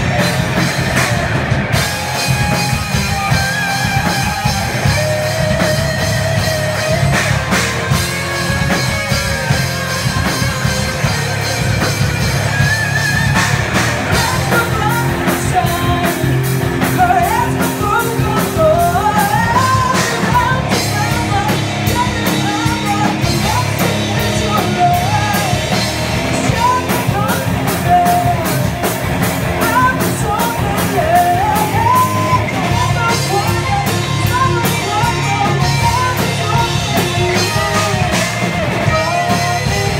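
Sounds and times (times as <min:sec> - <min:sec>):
metal band playing live: 0:00.0 - 0:39.9
woman singing: 0:14.1 - 0:39.9.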